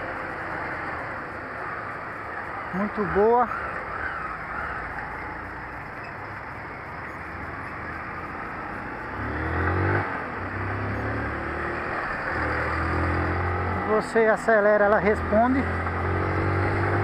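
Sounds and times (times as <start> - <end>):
motorcycle engine revving: 7.3 - 17.0.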